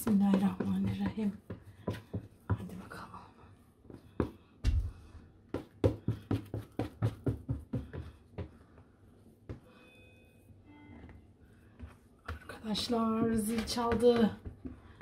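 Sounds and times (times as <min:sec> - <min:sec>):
hands slapping bread dough: 0:03.8 - 0:09.6.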